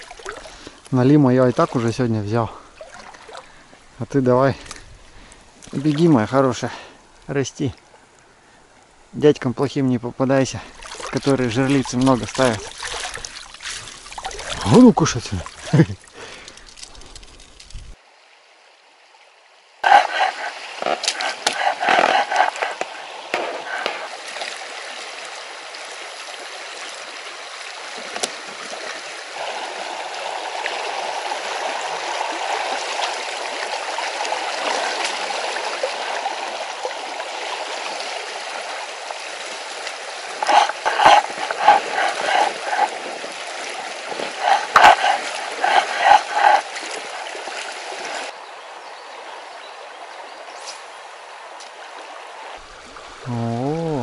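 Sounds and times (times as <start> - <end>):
river water rushing: 10.7 - 16.2, 19.8 - 53.3.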